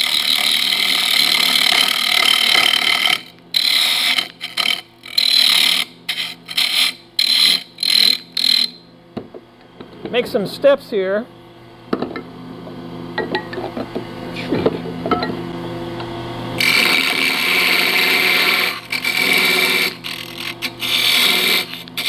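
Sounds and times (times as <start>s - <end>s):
turning tool scraping wood: 0.0s - 8.8s, 16.6s - 22.0s
wood lathe humming: 0.0s - 8.8s, 16.6s - 22.0s.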